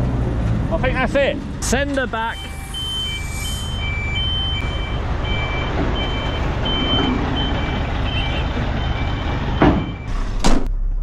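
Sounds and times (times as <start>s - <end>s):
diesel engine rumble: 0.0s - 11.0s
loud burst of noise: 2.2s - 7.8s
truck reversing alarm beeping: 2.2s - 10.3s.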